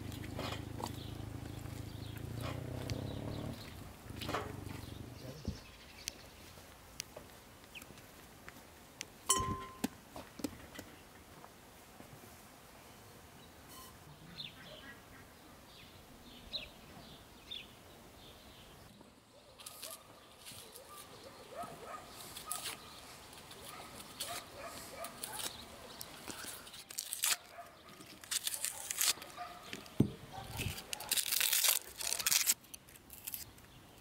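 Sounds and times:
onion skins crackling and tearing: 19.6 - 20.7, 22.2 - 34.0.

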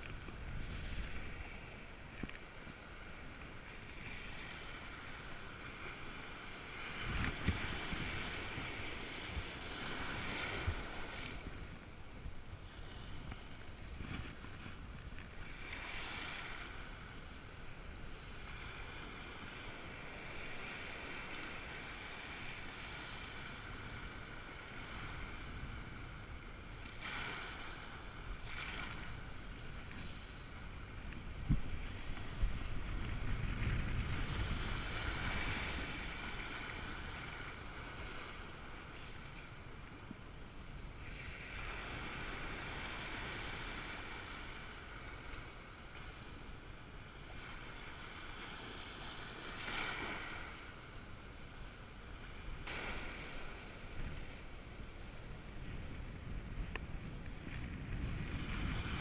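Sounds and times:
small waves breaking in surf: 0.0 - 59.0
wind buffeting microphone: 6.7 - 15.2, 29.0 - 38.5, 52.6 - 59.0.

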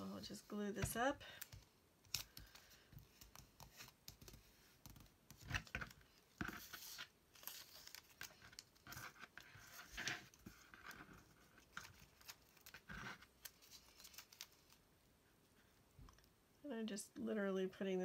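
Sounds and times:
paper rustling: 5.4 - 14.8.

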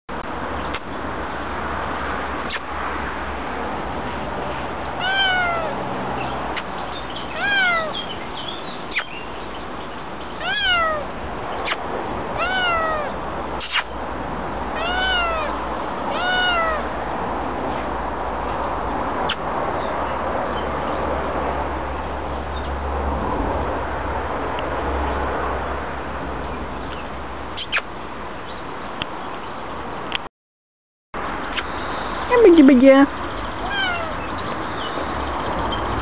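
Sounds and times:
kittens meowing: 5.0 - 5.8, 7.3 - 8.1, 10.4 - 11.8, 12.4 - 13.8, 14.7 - 16.9, 33.6 - 34.3.

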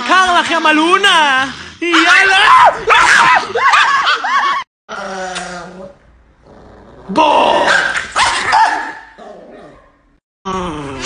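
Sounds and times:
small dog growling: 4.9 - 7.2
dog barking: 7.7 - 10.0.

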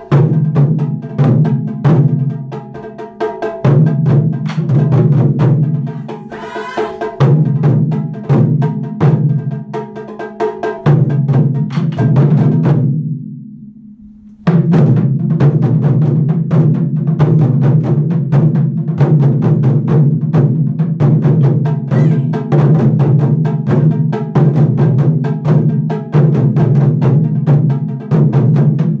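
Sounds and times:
taiko drums drumming: 0.0 - 13.1, 14.0 - 29.0
low drum ring: 10.9 - 16.7.

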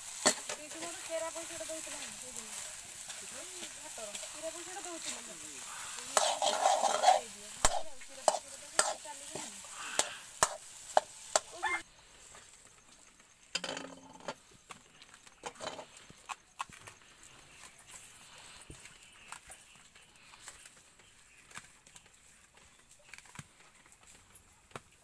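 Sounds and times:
metal spoon scraping a pan: 0.0 - 11.6
light sizzle: 0.0 - 25.0.

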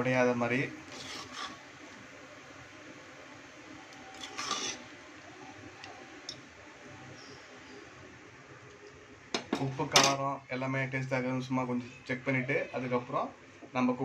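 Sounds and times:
steady low hiss: 0.0 - 14.0
metal spoon stirring rice: 0.9 - 1.6, 4.1 - 4.8.

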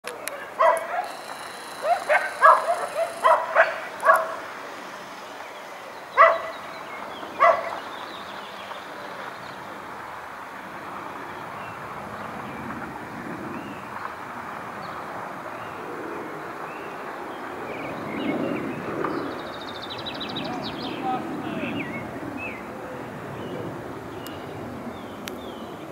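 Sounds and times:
jet aircraft engines rushing: 0.1 - 25.9
dog barking: 0.3 - 1.2, 1.8 - 4.5, 6.2 - 6.6, 7.4 - 7.8.

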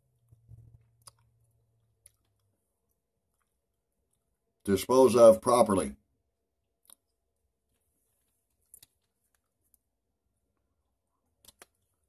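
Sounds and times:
faint clicks of gum pack: 6.8 - 9.9, 11.2 - 12.0.

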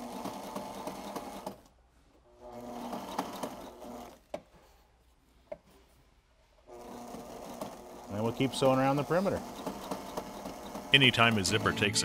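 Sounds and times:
sewing machine stitching: 0.0 - 1.7, 2.4 - 4.4, 6.7 - 12.0.

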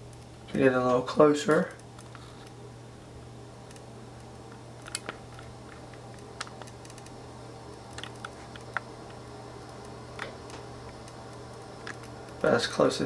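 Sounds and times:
low steady hum: 0.0 - 13.0
small handling clicks: 3.7 - 7.2, 7.8 - 12.5.

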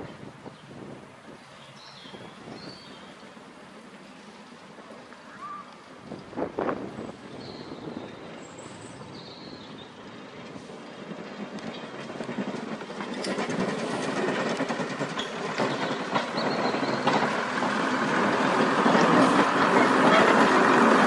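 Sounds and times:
diesel train passing: 0.0 - 21.0
train wheels clicking on track: 5.8 - 21.0.

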